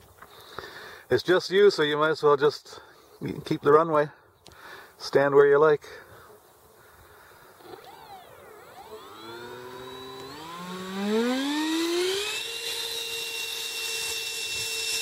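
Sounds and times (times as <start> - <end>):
electric ducted fan whine: 7.6 - 15.0.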